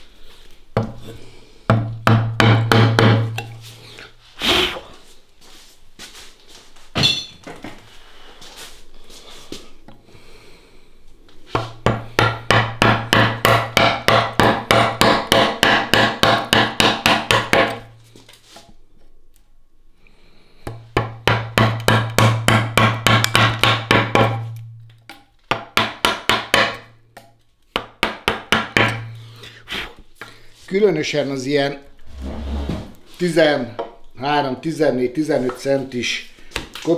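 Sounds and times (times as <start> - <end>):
mallet striking chisel into wood: 1.7 - 3.6, 11.6 - 17.9, 20.7 - 29.2.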